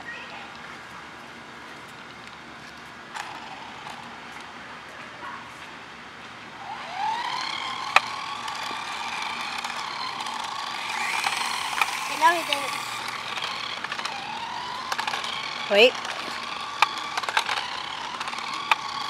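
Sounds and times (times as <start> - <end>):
toy car motor whining: 3.1 - 4.2, 6.6 - 19.0.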